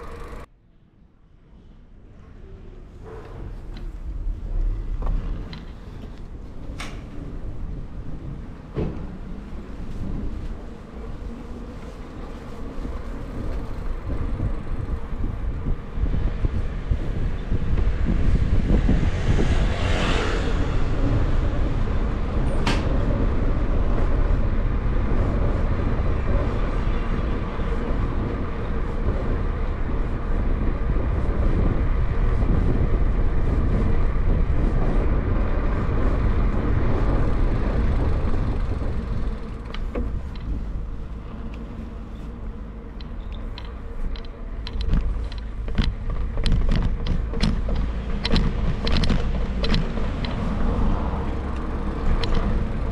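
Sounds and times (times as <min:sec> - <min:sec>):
sharp clicks and rattles: 0:00.0 - 0:00.5, 0:36.5 - 0:41.7, 0:42.9 - 0:52.9
passing road traffic: 0:00.0 - 0:00.8, 0:01.4 - 0:52.9
bicycle ride rumble: 0:00.0 - 0:52.9.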